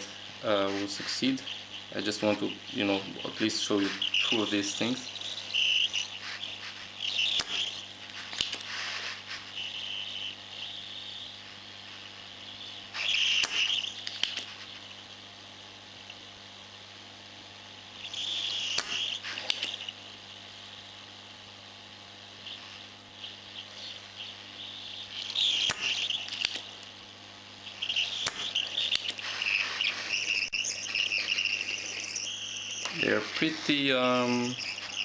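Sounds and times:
hot air gun hissing: 0.0 - 14.9, 18.0 - 20.1, 22.2 - 26.8, 27.6 - 35.0
sharp clicks: 7.1 - 8.7, 13.0 - 14.5, 18.6 - 19.9, 25.2 - 26.9, 27.8 - 33.0.

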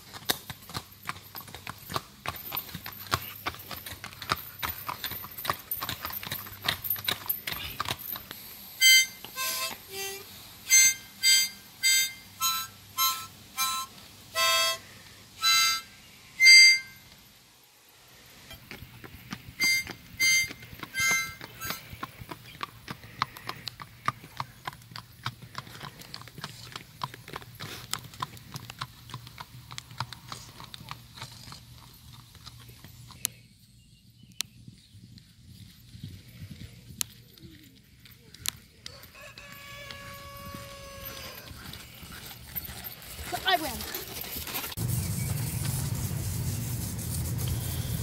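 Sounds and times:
horse hooves on pavement: 0.0 - 10.4, 18.5 - 33.5, 34.5 - 48.0
harmonica notes: 8.8 - 17.1, 19.6 - 22.0.

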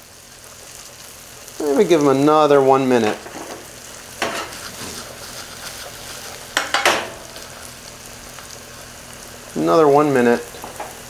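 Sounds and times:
onions sizzling in pan: 0.0 - 11.0
wooden spoon scraping pan: 3.0 - 7.2.

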